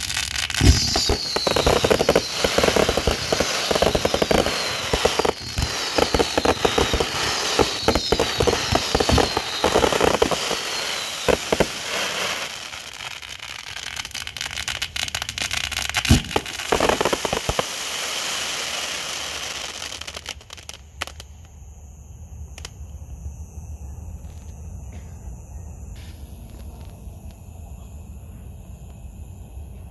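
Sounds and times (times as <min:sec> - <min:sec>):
rapid crackling and popping: 0:00.0 - 0:17.7.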